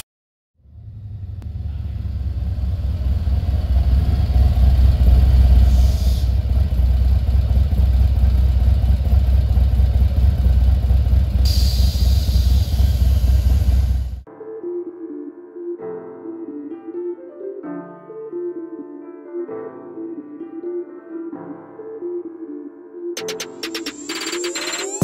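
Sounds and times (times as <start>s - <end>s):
motorcycle engine idling: 0.7s - 14.2s
brief hiss: 11.5s - 14.0s.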